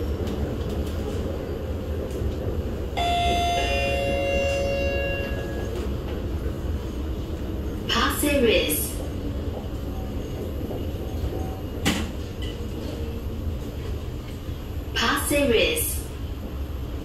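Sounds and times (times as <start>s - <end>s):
train rumbling: 0.0s - 17.0s
two-note train chime: 3.0s - 5.8s.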